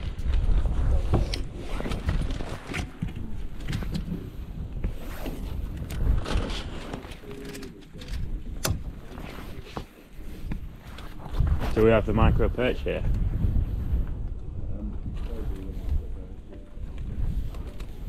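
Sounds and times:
fishing gear clicks and knocks: 0:00.0 - 0:11.2
wind buffeting microphone: 0:00.0 - 0:18.0.

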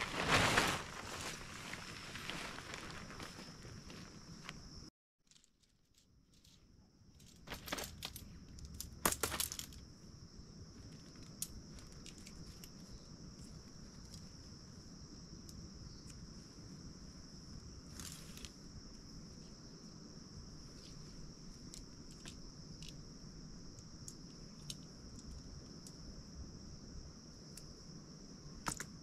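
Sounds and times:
high insect buzz: 0:07.3 - 0:29.0.

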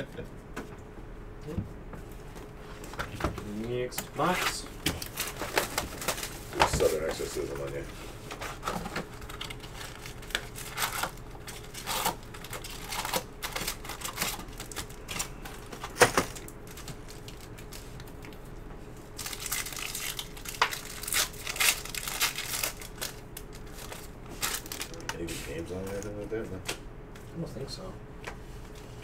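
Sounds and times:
foil wrapper crinkling: 0:04.2 - 0:26.2.

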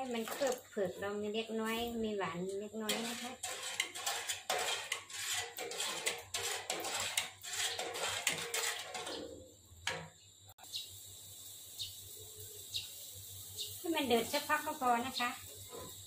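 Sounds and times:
metal ladle clinking and scraping pan: 0:00.0 - 0:00.7, 0:02.8 - 0:10.2
faint steady hiss: 0:09.8 - 0:16.0.

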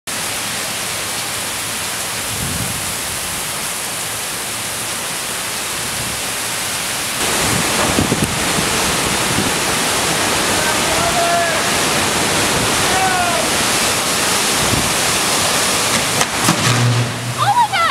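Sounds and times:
heavy rain pouring: 0:00.1 - 0:17.9
low rumbles of thunder: 0:02.3 - 0:03.4, 0:07.2 - 0:10.2.

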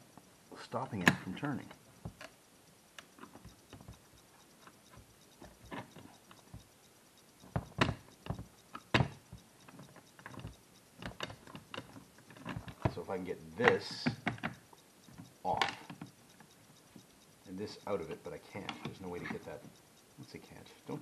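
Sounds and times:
tools clicking on metal: 0:07.4 - 0:20.6.

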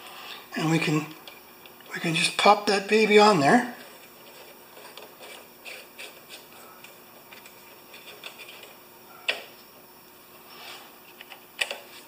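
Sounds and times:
small parts clicking and scraping: 0:03.8 - 0:09.4.

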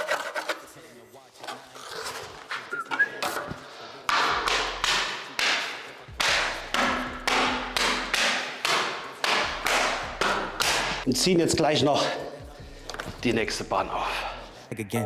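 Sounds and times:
drum beat over deep bass: 0:06.1 - 0:08.1.

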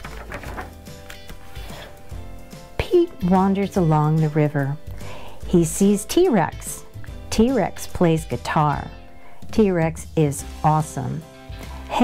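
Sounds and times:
book page turning: 0:00.0 - 0:01.9
soft background music: 0:00.0 - 0:12.0.

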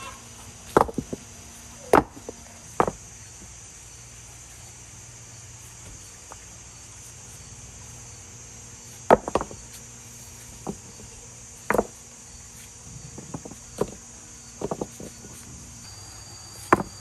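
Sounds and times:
high insect chorus: 0:00.0 - 0:17.0
sharp knocks on stony ground: 0:00.7 - 0:01.2, 0:01.9 - 0:03.0, 0:09.0 - 0:09.6, 0:11.6 - 0:12.0, 0:13.1 - 0:14.0, 0:14.6 - 0:15.3, 0:16.6 - 0:17.0.

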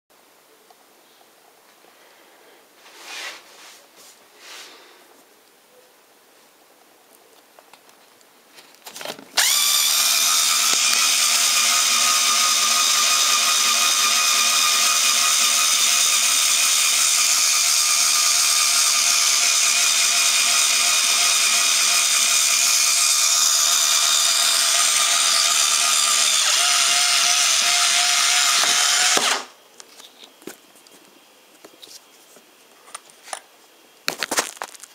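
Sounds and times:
cordless screwdriver motor running: 0:09.4 - 0:29.5.

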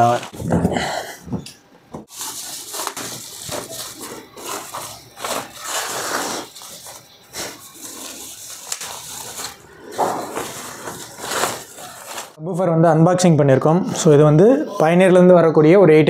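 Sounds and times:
plastic wrap and foam rustling: 0:00.0 - 0:00.7, 0:02.1 - 0:12.4.

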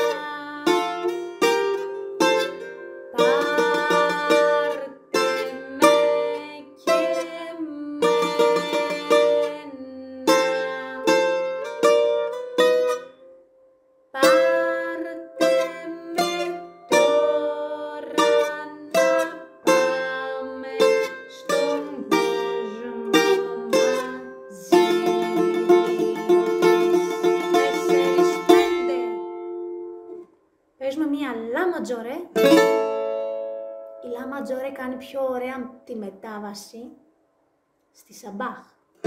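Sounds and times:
bouzouki picked with plectrum: 0:00.0 - 0:13.4, 0:14.2 - 0:30.2, 0:32.4 - 0:34.5.

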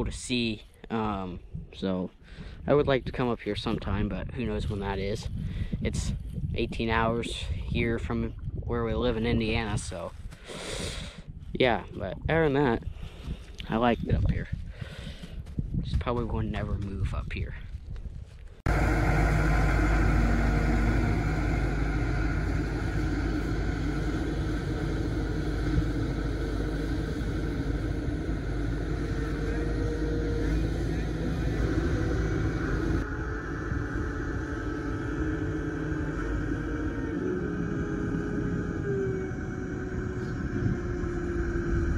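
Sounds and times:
diesel engine droning: 0:18.6 - 0:41.9.

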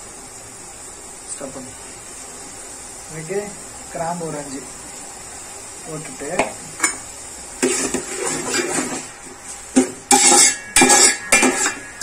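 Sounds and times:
spoon scraping metal pot: 0:10.1 - 0:12.0.

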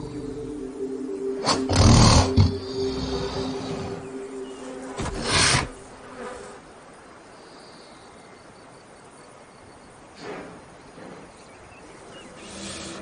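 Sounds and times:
faint insect buzz: 0:00.0 - 0:13.0
bull snorting: 0:01.4 - 0:04.0, 0:05.0 - 0:05.8.

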